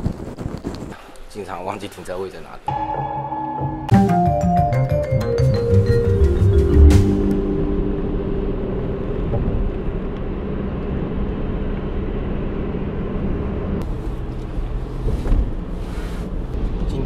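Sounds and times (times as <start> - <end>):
car road and engine noise: 5.8 - 17.0.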